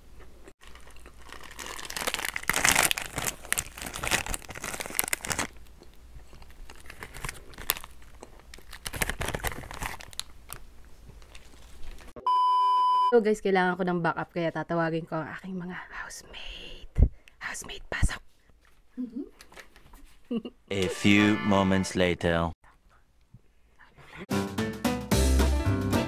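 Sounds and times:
plastic wrapper crinkling: 0:00.6 - 0:12.1.

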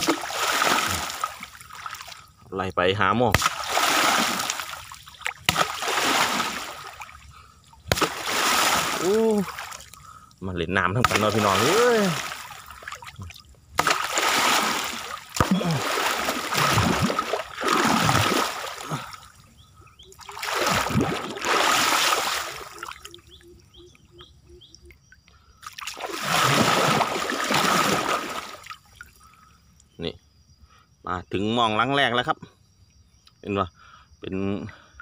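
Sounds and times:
water sloshing and splashing: 0:00.0 - 0:02.4, 0:03.3 - 0:10.2, 0:11.0 - 0:23.6, 0:25.6 - 0:29.4.

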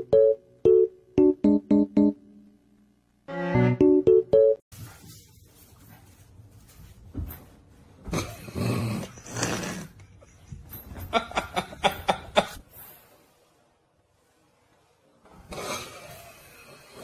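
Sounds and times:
person laughing: 0:10.1 - 0:12.6.

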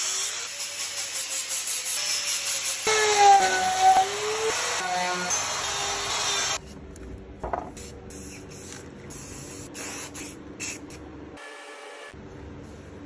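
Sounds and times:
spray paint hissing bursts: 0:07.7 - 0:11.0.

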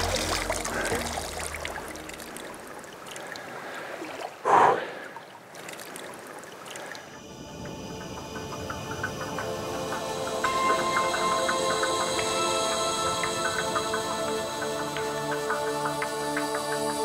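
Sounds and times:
music: 0:00.0 - 0:02.7, 0:07.2 - 0:17.0
water trickling and splashing: 0:00.0 - 0:16.7.

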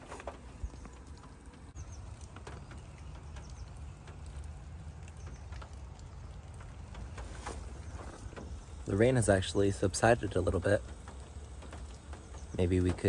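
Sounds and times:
light rain: 0:00.0 - 0:13.0
faint ticks: 0:00.2 - 0:13.0.

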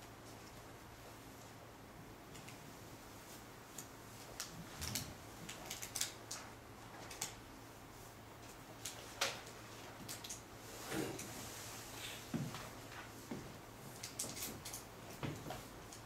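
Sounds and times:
faint room hum: 0:00.0 - 0:16.0.

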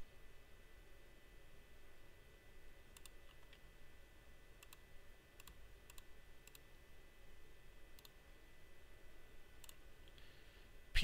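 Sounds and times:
faint electrical hum: 0:00.0 - 0:11.0
computer mouse clicks: 0:02.9 - 0:03.6, 0:04.6 - 0:04.8, 0:05.4 - 0:06.7, 0:07.9 - 0:08.2, 0:09.6 - 0:10.2.

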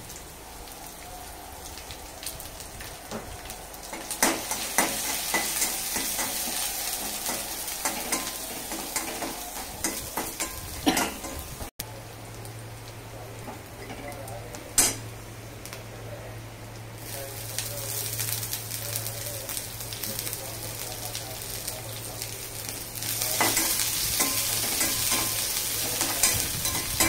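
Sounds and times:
food sizzling in hot oil: 0:00.0 - 0:15.9, 0:16.8 - 0:27.0.

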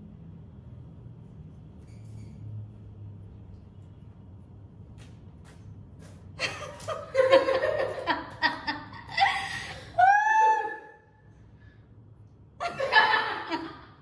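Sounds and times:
men laughing: 0:12.6 - 0:13.9.

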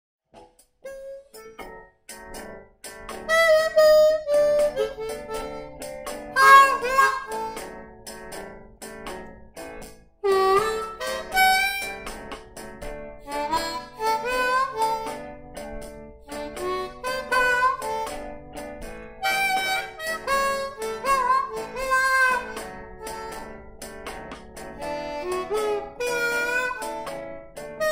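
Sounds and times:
harmonica playing blues: 0:00.8 - 0:08.5, 0:10.2 - 0:27.9.

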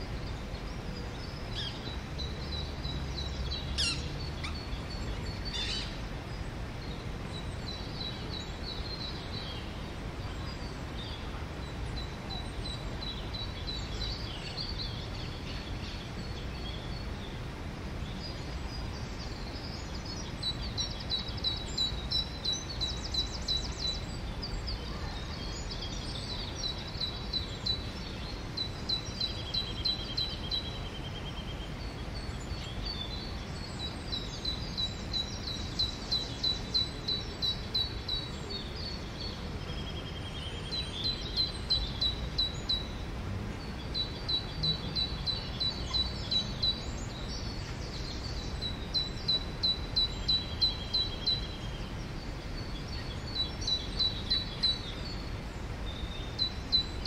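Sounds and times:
songbirds chirping: 0:00.0 - 0:57.0.

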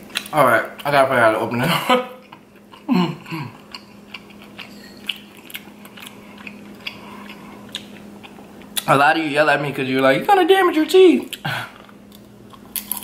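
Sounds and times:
low vocal hum: 0:02.7 - 0:03.6.

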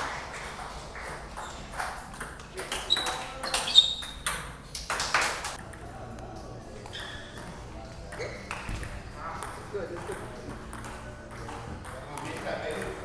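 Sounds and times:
short high squeaks: 0:02.8 - 0:04.3.

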